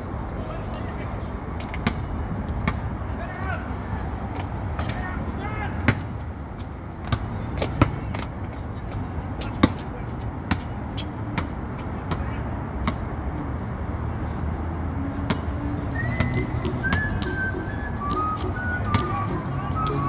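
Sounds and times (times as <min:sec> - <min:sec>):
background noise: 0:00.0 - 0:20.0
basketball bouncing on concrete: 0:07.0 - 0:08.5, 0:09.4 - 0:13.1, 0:18.0 - 0:19.2
whistled melody: 0:15.9 - 0:20.0.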